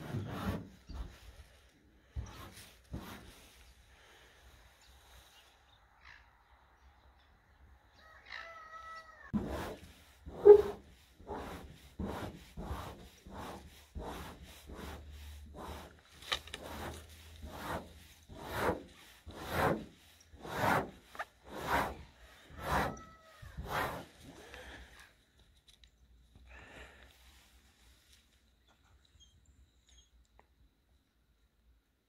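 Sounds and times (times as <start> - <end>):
fingertips scraping frost: 0.0 - 4.3, 9.4 - 25.0.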